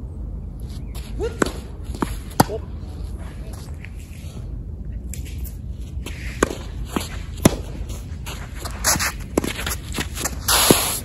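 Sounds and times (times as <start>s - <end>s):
tennis ball hitting racket: 1.2s - 2.7s, 6.3s - 10.9s
tennis ball bouncing on court: 1.4s - 2.6s, 6.4s - 7.8s
shoe scuffs on court: 5.2s - 11.0s.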